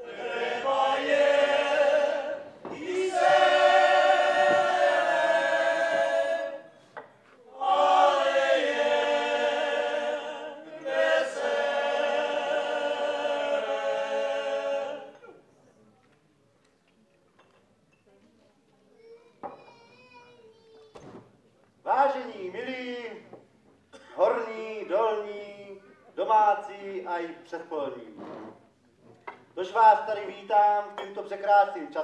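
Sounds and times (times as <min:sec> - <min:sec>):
men's choir singing unaccompanied: 0:00.0 - 0:06.8, 0:07.5 - 0:15.3.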